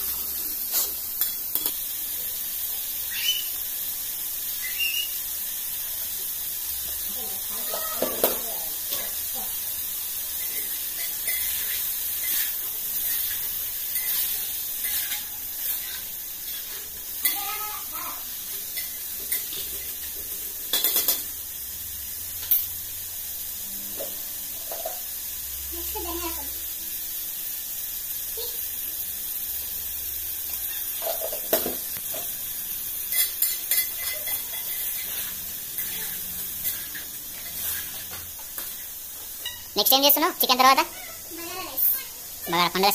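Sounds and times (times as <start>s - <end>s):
chicken sizzling in a pot: 0.0s - 42.9s
spoon scraping a pot: 10.4s - 17.4s, 33.1s - 38.7s.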